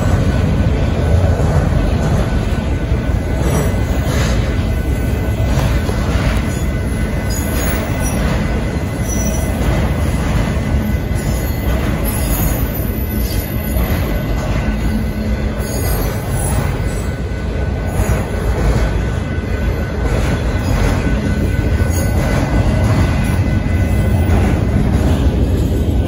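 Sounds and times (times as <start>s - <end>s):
train wheels rumbling on rails: 0.0s - 26.0s
high wheel squeal: 6.4s - 18.5s.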